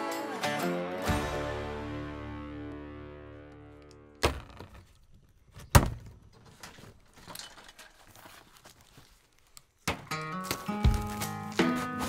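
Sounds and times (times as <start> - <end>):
cardboard rustling: 6.4 - 12.0.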